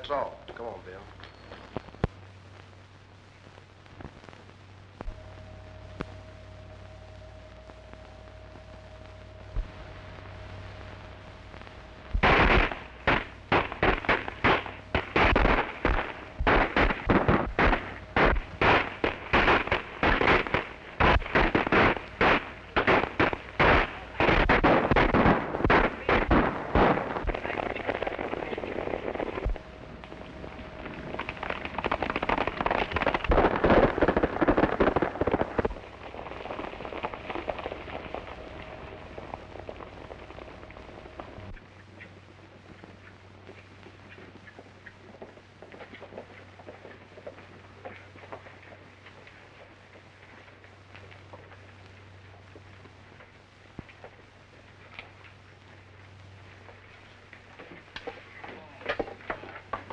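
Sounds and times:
rapid gunshots: 12.2 - 28.9.

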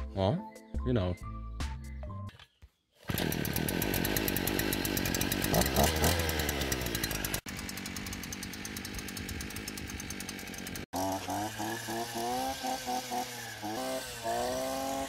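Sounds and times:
brush cutter engine running: 3.0 - 15.0.

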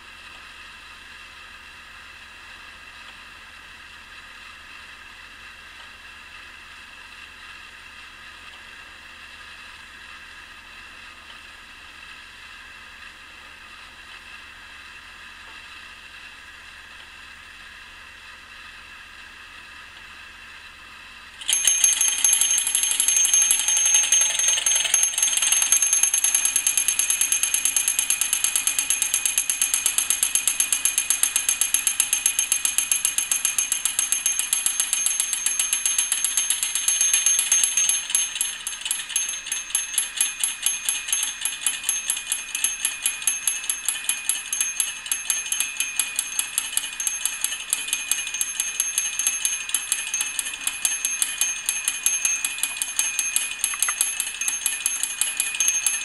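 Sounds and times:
rapid ringing warning bell: 21.4 - 56.0.

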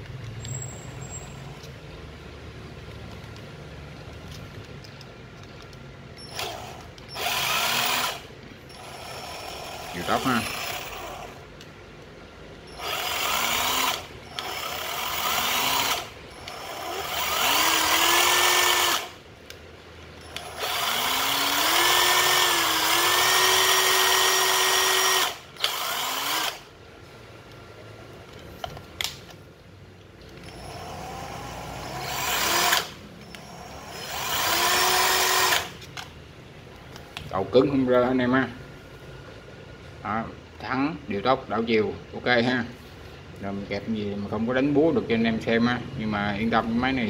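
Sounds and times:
impact driver motor whine: 6.2 - 11.4, 12.7 - 19.2, 20.2 - 26.6, 30.4 - 35.7.

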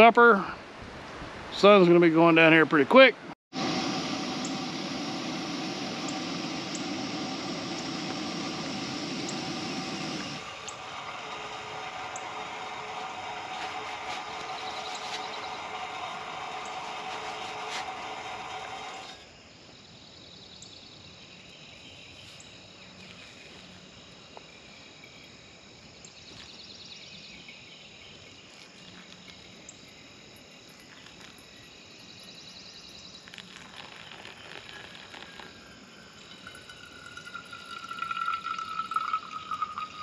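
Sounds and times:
camp stove burner hissing: 3.5 - 19.3, 28.5 - 40.0
hot water pouring: 3.6 - 19.2, 28.3 - 40.0
insects trilling: 6.0 - 18.2, 18.8 - 40.0.

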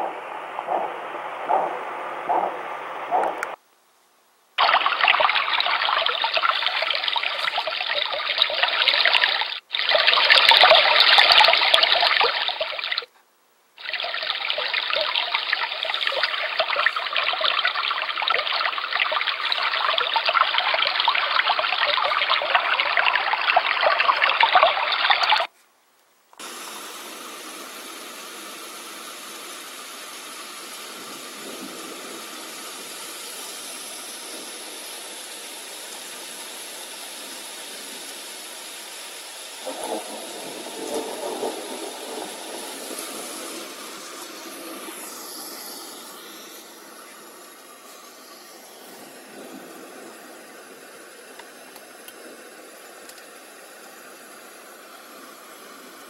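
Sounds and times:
quiet even hiss: 0.0 - 23.4, 25.4 - 26.4
babbling stream water: 4.6 - 13.1, 13.8 - 25.5, 35.9 - 56.0.

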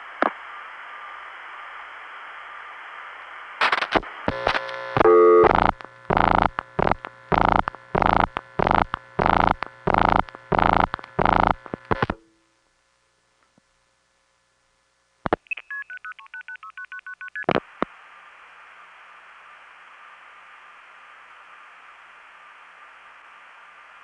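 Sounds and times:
telephone line hiss: 3.7 - 12.2.

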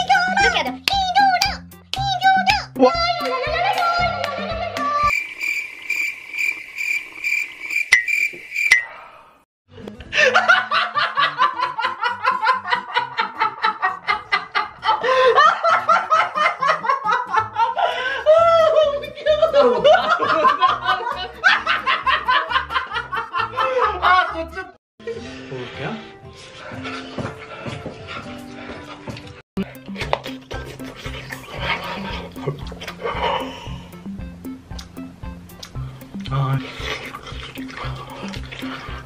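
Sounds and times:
crickets chirping: 5.1 - 8.9
man laughing loudly: 10.1 - 24.4.

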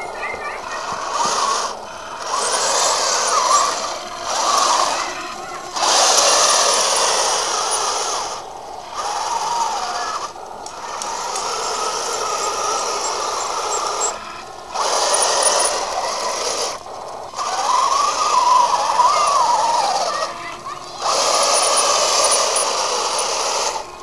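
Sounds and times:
model tank motors whirring: 0.0 - 24.0
tank tracks rattling: 0.0 - 24.0.

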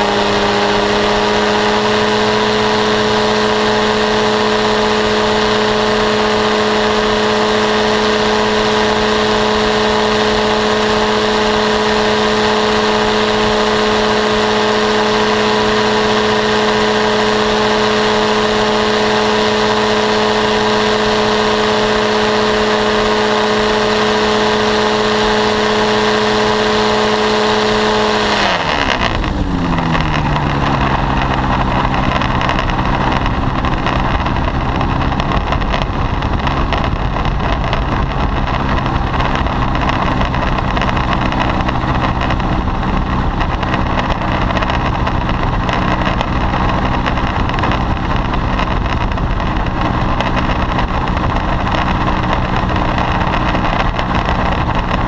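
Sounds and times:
engine and propeller running: 0.0 - 55.0
low rumble: 28.8 - 55.0.

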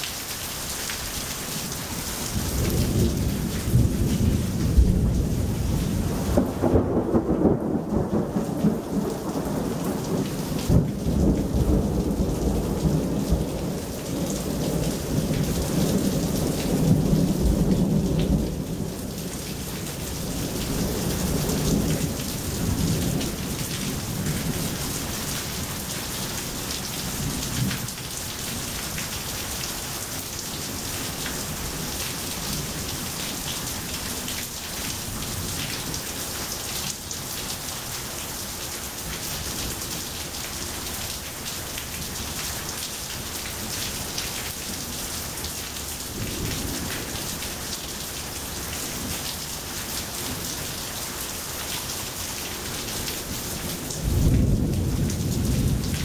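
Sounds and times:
rain falling on pavement: 0.0 - 56.0
thunder rumbling: 2.4 - 19.3, 54.0 - 56.0.

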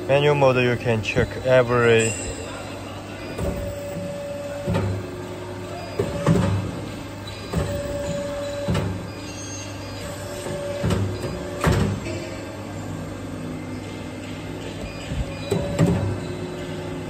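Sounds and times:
machine movement whine: 0.0 - 17.0
machine clunks: 14.8 - 16.3.

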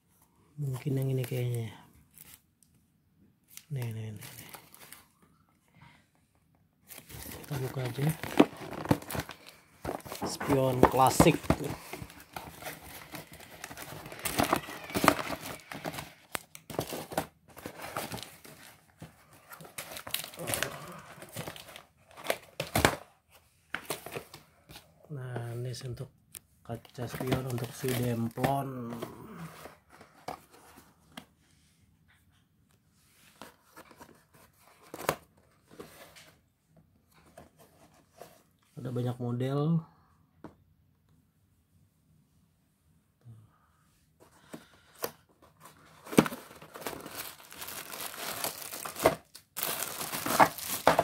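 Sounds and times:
cardboard ripping and crinkling: 6.9 - 18.7, 46.0 - 51.0.

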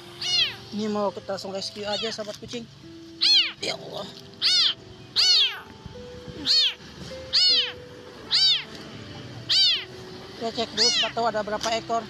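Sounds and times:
kitten meowing loudly: 0.2 - 0.7, 1.8 - 2.2, 3.2 - 3.6, 4.4 - 5.7, 6.4 - 8.7, 9.5 - 9.9, 10.7 - 11.2.

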